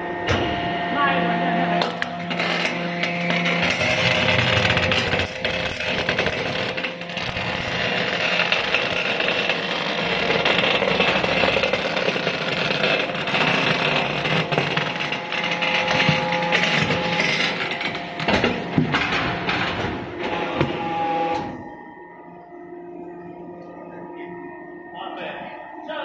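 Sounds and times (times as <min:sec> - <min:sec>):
machine grinding and scraping wire: 0:01.8 - 0:21.6.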